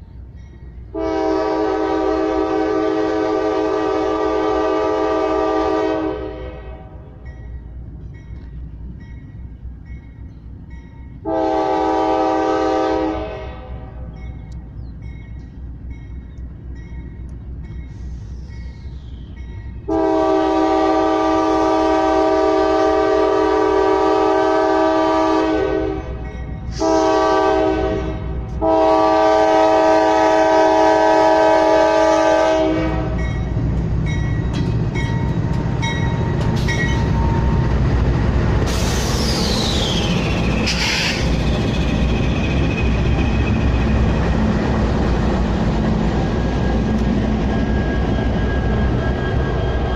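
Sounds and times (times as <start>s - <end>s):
locomotive engine rumble: 0.0s - 49.9s
train wheel noise: 0.0s - 49.9s
locomotive air horn blasts: 0.9s - 7.1s, 11.2s - 14.1s, 19.9s - 33.3s
crossing bell dinging: 6.9s - 11.3s, 14.0s - 19.9s, 26.0s - 26.8s, 33.0s - 37.8s
high squeal gliding downward: 34.2s - 49.9s.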